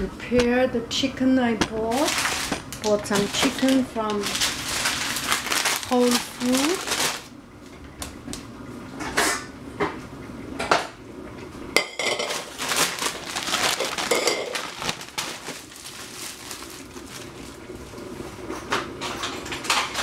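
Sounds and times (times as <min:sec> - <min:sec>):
rustling handling noises: 0:01.6 - 0:07.3, 0:12.1 - 0:18.6.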